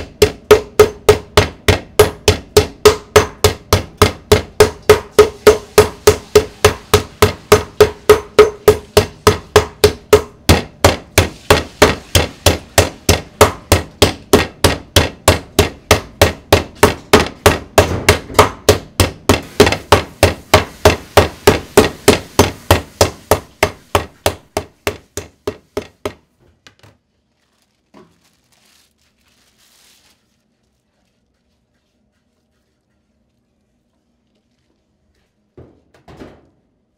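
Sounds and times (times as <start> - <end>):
meat mallet pounding: 0.0 - 26.3
plastic wrap handling: 26.5 - 32.6.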